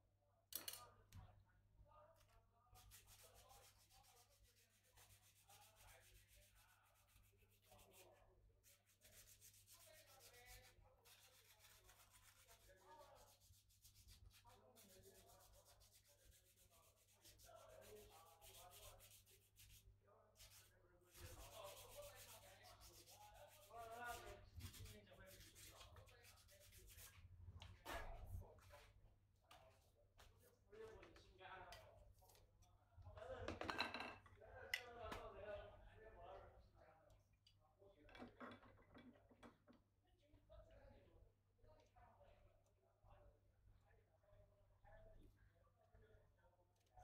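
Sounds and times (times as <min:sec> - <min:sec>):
hand sanding rubbing strokes: 0:08.7 - 0:19.8, 0:20.4 - 0:27.1.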